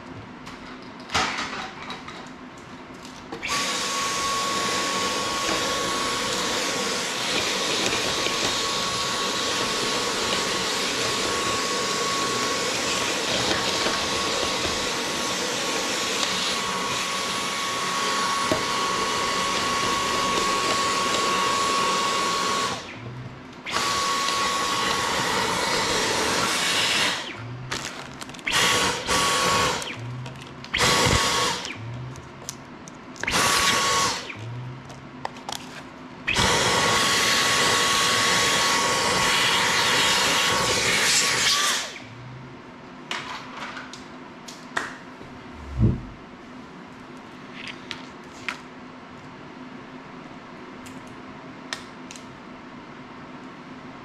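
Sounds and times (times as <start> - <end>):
stick vacuum running: 3.3 - 32.6, 33.2 - 35.1.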